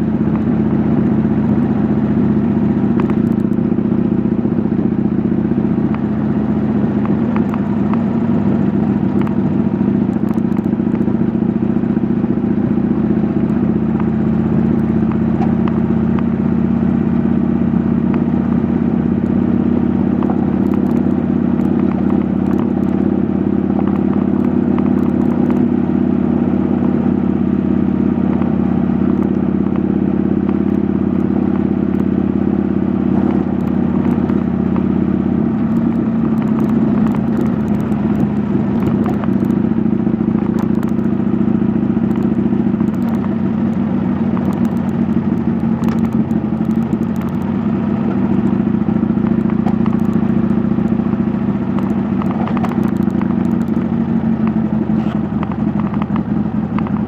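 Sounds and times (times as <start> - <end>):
motorcycle engine running: 0.0 - 57.0
clicks and rattles: 51.7 - 54.0.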